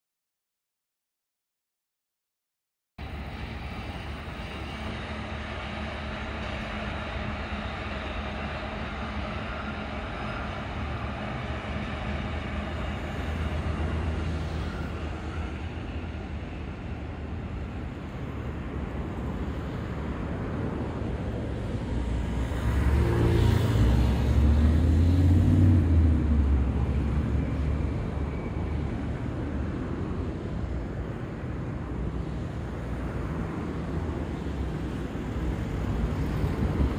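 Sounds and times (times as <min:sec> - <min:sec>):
city traffic rumble: 0:03.0 - 0:36.9
passing train: 0:03.0 - 0:36.9.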